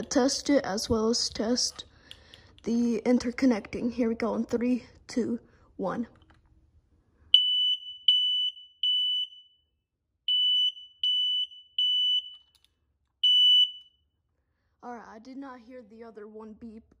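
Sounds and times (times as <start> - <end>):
smoke alarm beeping: 7.3 - 12.6, 13.2 - 14.2.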